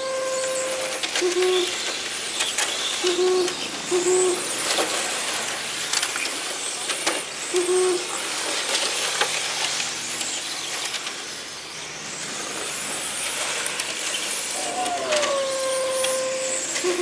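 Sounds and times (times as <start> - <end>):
short low hooting tones: 0.0 - 1.8, 3.0 - 4.5, 14.5 - 17.0
rc car motors whining: 0.0 - 17.0
tyre hiss: 12.3 - 17.0.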